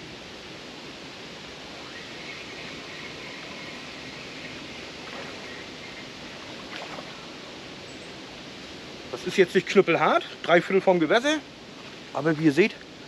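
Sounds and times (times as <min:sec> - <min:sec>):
outdoor background hiss: 0:00.0 - 0:13.0.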